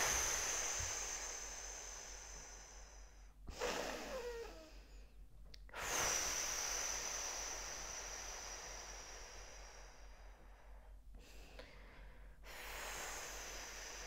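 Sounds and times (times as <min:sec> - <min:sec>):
woman exhaling slowly: 0:00.0 - 0:05.1, 0:05.7 - 0:10.5.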